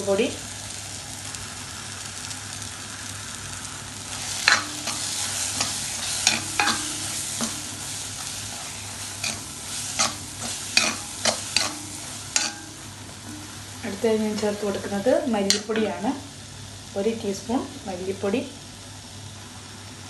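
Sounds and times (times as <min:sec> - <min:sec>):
masala sizzling in pan: 0:00.0 - 0:20.0
spoon scraping and knocking pan: 0:04.2 - 0:16.0.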